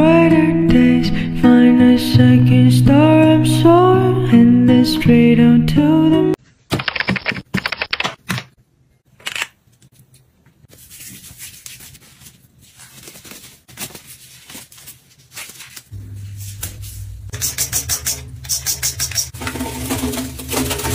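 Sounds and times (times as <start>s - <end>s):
plastic gloves crinkling: 10.7s - 17.3s.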